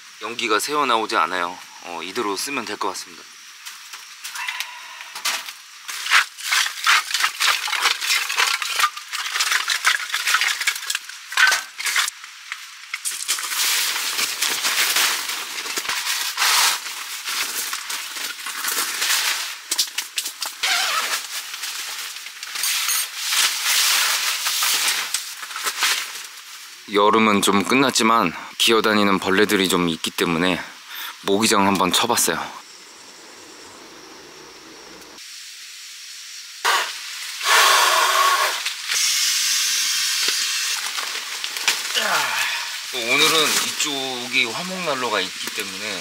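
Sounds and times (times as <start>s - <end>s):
nylon fabric rustling and crinkling: 13.1s - 26.8s.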